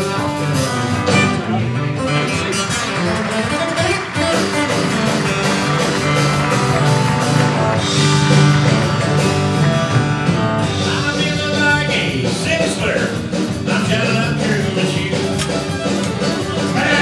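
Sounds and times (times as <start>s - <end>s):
live country band playing: 0.0s - 17.0s
person singing: 10.8s - 15.6s, 16.6s - 17.0s.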